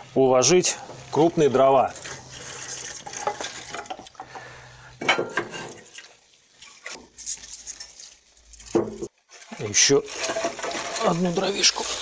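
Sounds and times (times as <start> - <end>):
wood rustling and scraping: 0.6 - 4.5, 5.2 - 12.0
logs knocking together: 8.7 - 11.3.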